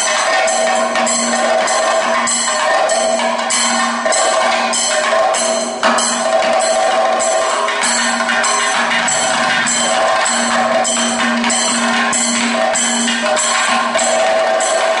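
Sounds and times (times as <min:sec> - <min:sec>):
percussion striking steady beat: 0:00.0 - 0:15.0
held drone note: 0:07.9 - 0:14.1.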